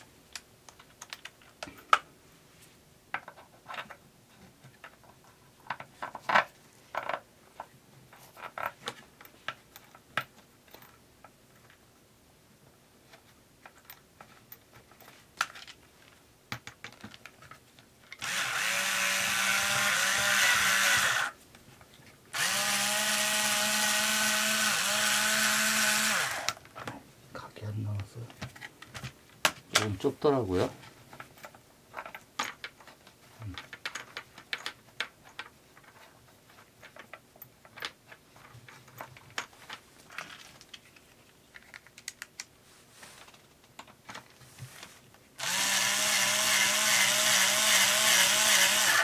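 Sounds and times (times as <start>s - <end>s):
clicks and knocks of parts handled: 0.3s - 2.1s, 3.1s - 11.8s, 13.1s - 18.3s, 30.8s - 42.6s, 43.2s - 44.4s
cordless drill whining: 18.2s - 21.4s, 22.4s - 26.6s, 45.4s - 49.0s.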